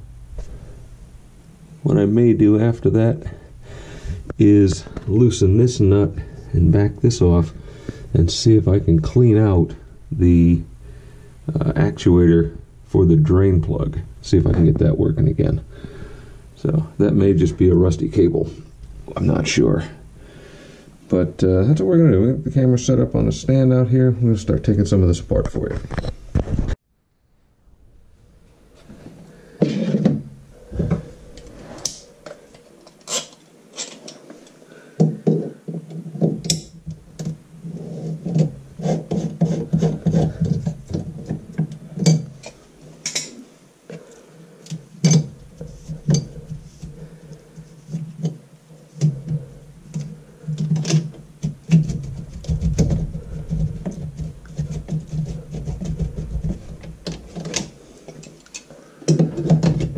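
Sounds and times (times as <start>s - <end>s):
steady low hum: 0.0s - 59.9s
knocks and plastic clatters: 49.0s - 59.9s.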